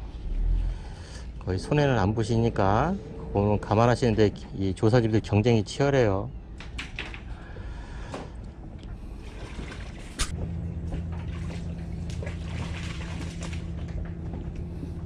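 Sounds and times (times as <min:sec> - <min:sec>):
water trickling and splashing: 0:09.0 - 0:14.2.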